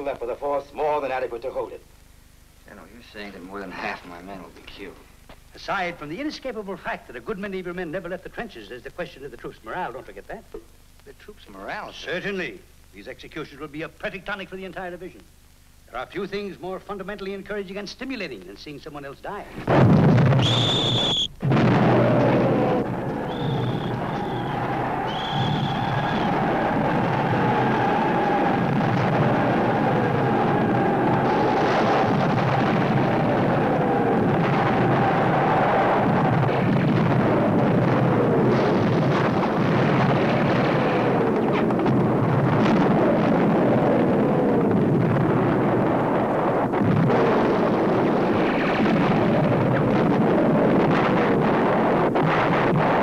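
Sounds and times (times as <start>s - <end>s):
artillery shells whistling: 19.7s - 43.5s.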